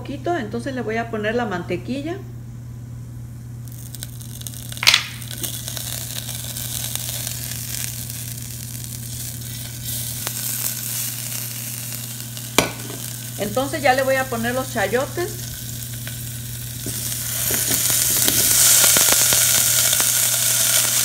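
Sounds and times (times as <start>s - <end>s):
butter sizzling in a saucepan: 3.6s - 21.0s.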